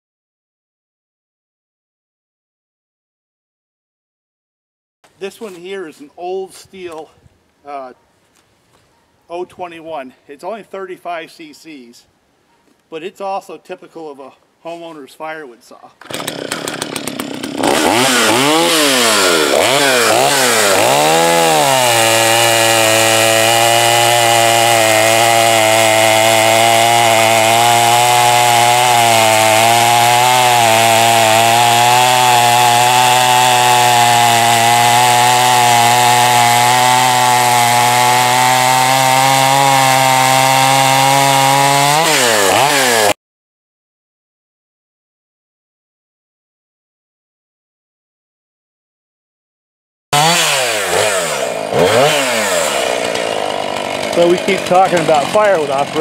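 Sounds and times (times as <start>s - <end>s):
chainsaw revving and cutting log: 16.0s - 43.2s, 50.1s - 56.0s.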